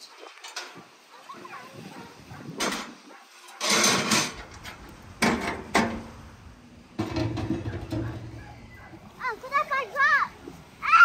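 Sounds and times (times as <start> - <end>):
metal clanks on stove top: 3.6 - 6.0, 7.0 - 8.4
metal pot scraping rumble: 3.6 - 6.2, 7.0 - 8.7.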